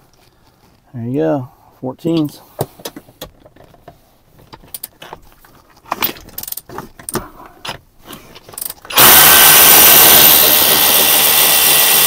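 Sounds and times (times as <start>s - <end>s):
power tool running: 8.9s - 12.0s.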